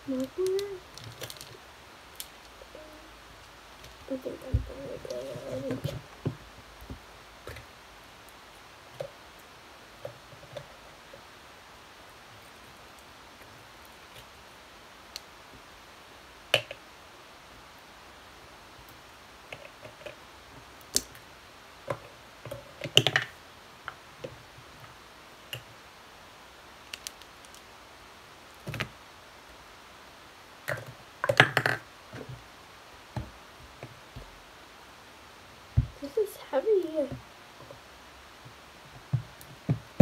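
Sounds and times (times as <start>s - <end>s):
plastic tubs clicking and knocking: 21.9s - 24.0s, 30.7s - 32.4s.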